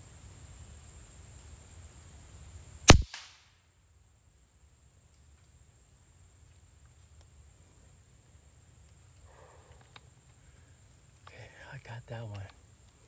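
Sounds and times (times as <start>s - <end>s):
air rifle shot: 2.9s - 3.5s.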